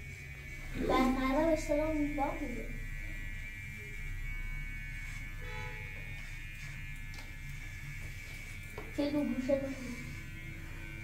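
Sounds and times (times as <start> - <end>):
electric motor buzz and hum: 0.0 - 11.0.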